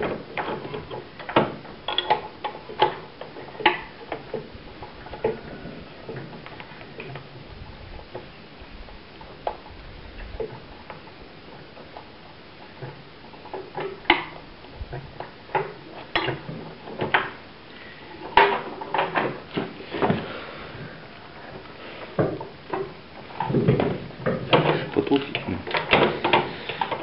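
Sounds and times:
tools clicking on engine parts: 0.0 - 5.4.

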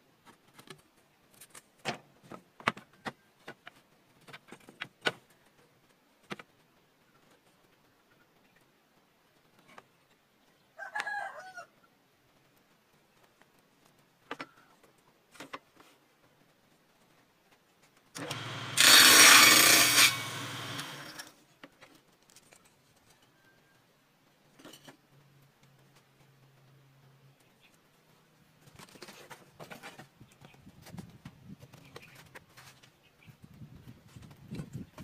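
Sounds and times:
rooster crowing: 10.8 - 11.7
saw motor hum: 18.2 - 21.3
table saw cutting wood: 18.2 - 21.3.

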